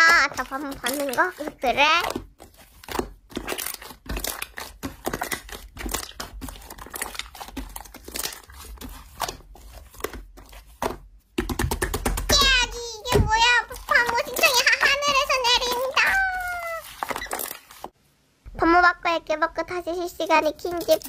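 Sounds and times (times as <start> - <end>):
slime crackling and popping: 0.0 - 10.2.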